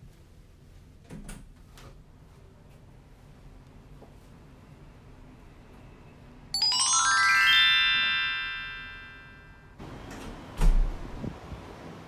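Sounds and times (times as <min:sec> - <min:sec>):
rising bell-like chime tones: 0:06.6 - 0:09.8.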